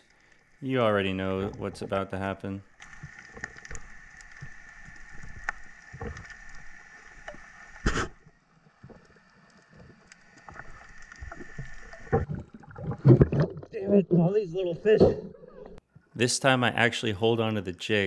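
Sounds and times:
muffled underwater hiss: 0.0 - 12.2
faint clicks: 2.7 - 7.6.

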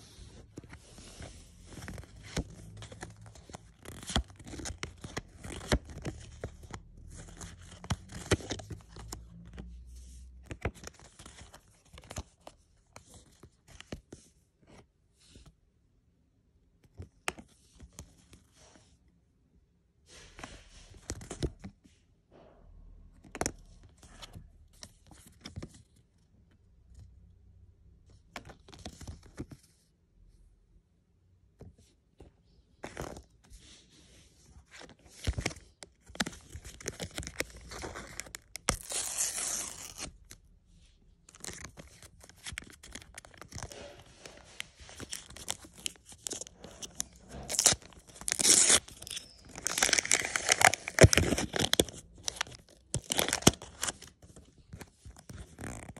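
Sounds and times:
foil packet tearing and crinkling: 47.5 - 54.0.

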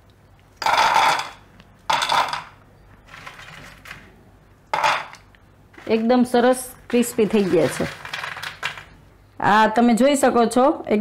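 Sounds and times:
fried dough pieces clattering onto plate: 0.6 - 2.5, 4.7 - 5.2.

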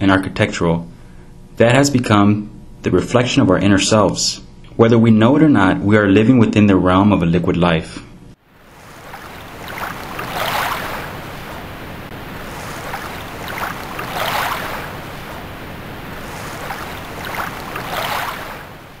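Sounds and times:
ocean waves washing in: 8.4 - 19.0.

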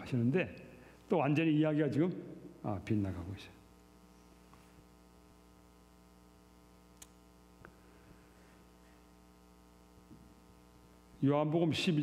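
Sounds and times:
faint mains hum: 0.0 - 12.0
faint clicks: 6.9 - 7.8.

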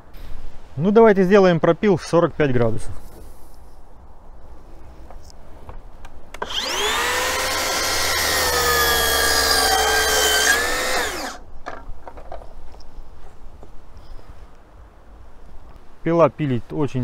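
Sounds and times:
miter saw cutting wood: 6.4 - 11.4.

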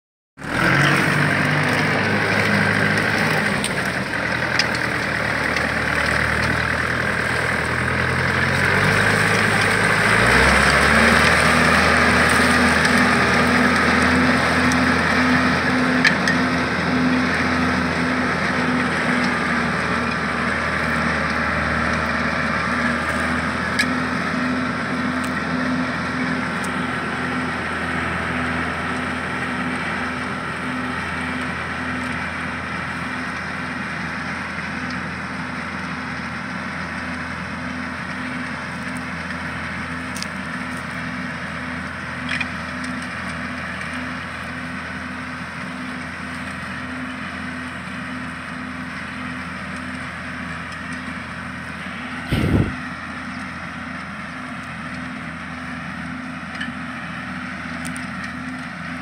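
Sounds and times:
tractor engine under load: 0.4 - 59.0
implement whirring: 51.8 - 52.9.

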